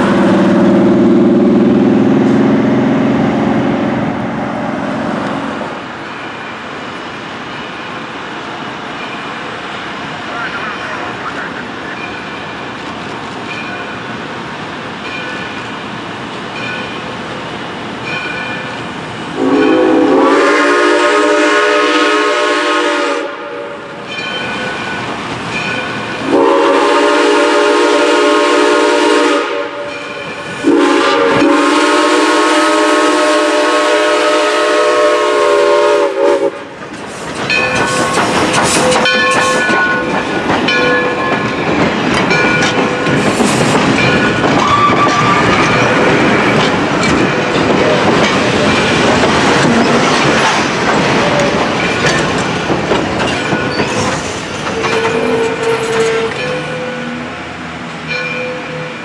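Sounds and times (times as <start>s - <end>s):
train rumbling past: 0.0s - 59.0s
steam whistle blasts: 19.4s - 23.8s, 26.2s - 30.0s, 30.6s - 36.7s
wheels clacking over rail joints: 36.8s - 57.2s.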